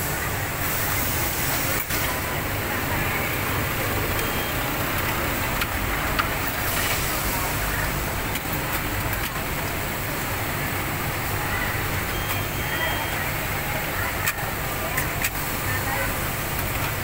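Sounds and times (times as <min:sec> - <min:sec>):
machinery hiss: 0:00.0 - 0:02.7.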